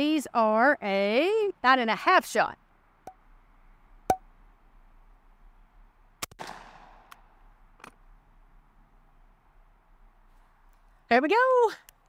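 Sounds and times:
shotgun shot: 6.2 - 7.2.

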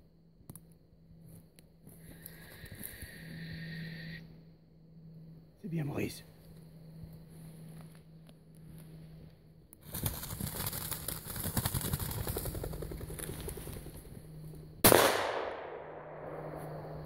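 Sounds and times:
loud gunshot: 14.8 - 16.8.

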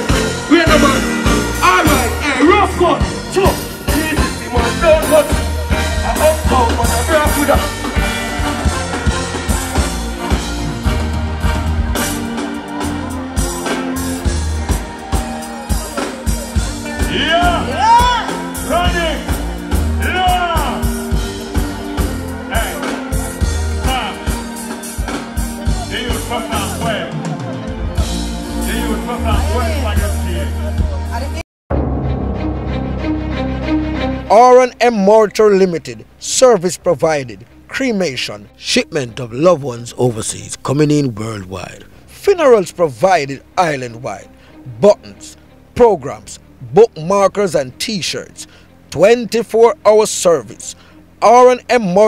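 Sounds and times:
dancehall music with heavy bass: 0.0 - 31.1.

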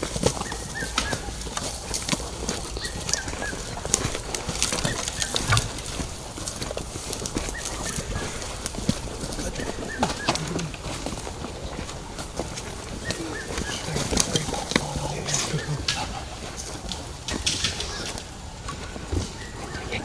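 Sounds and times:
footsteps through dry leaves: 0.0 - 15.7
bird chirps: 4.8 - 6.0.

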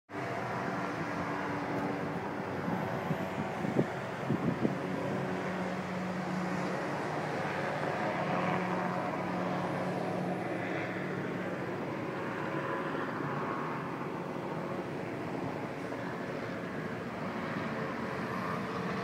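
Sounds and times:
helicopter drone in flight: 0.1 - 19.0.

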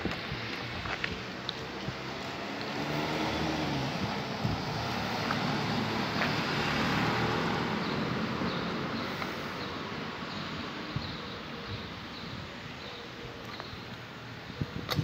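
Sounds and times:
motor vehicle passing: 0.2 - 9.8.

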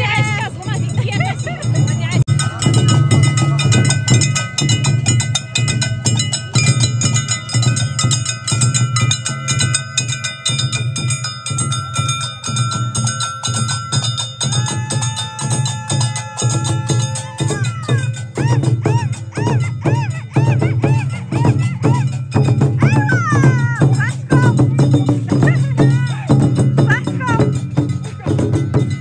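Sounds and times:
drums beaten with sticks: 0.0 - 29.0.

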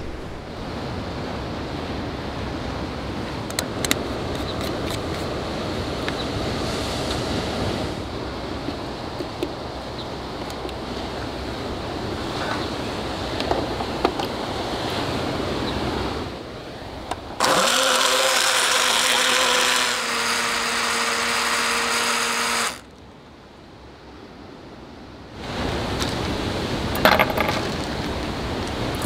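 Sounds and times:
blender motor humming: 17.4 - 22.8.

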